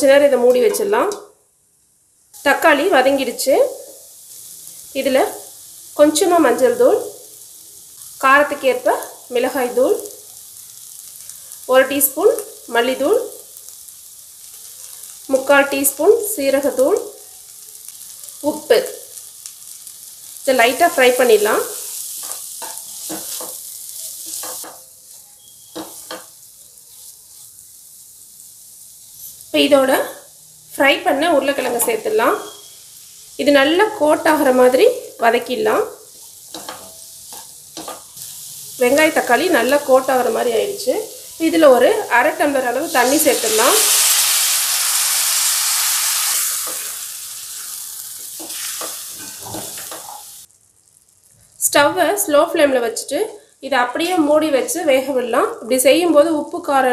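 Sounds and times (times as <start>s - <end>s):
oil sizzling: 0.0s - 56.9s
spatula scraping a steel pan: 48.4s - 50.2s.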